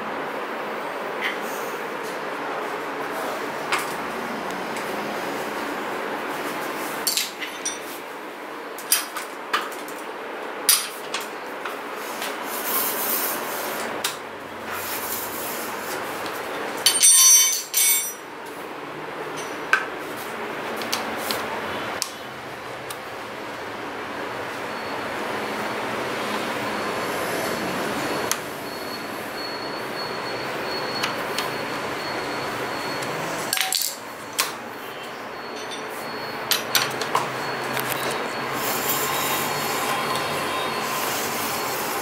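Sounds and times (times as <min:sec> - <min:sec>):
metal tools knocking and clinking: 0:07.1 - 0:07.9, 0:16.8 - 0:18.2, 0:33.5 - 0:34.0, 0:35.5 - 0:35.9
ringing metallic jangle: 0:16.8 - 0:18.2, 0:35.4 - 0:36.0.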